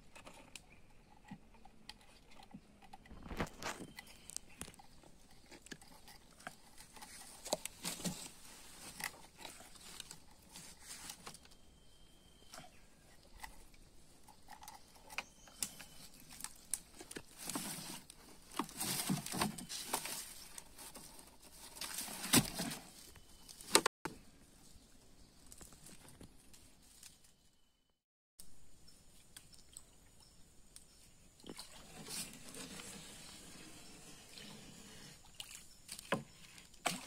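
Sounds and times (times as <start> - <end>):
netting scraping plastic bucket: 31.5 - 37.0.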